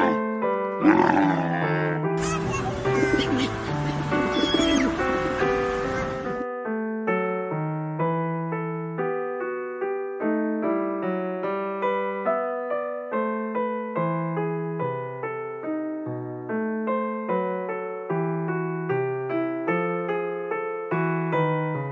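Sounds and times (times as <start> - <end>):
background piano music: 0.0 - 21.9.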